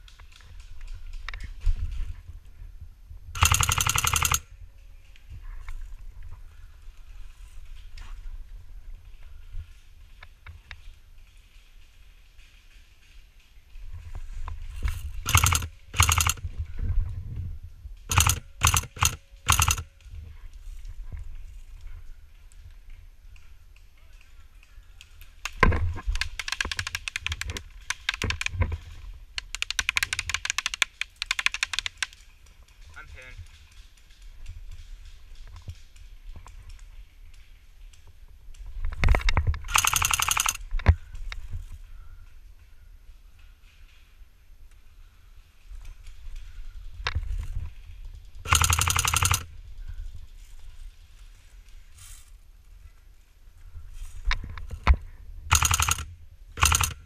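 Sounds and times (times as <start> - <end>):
airsoft guns firing bursts: 3.4 - 4.5, 15.2 - 16.5, 18.1 - 19.9, 25.5 - 28.6, 29.4 - 32.1, 39.7 - 40.6, 48.5 - 49.5, 55.5 - 57.0.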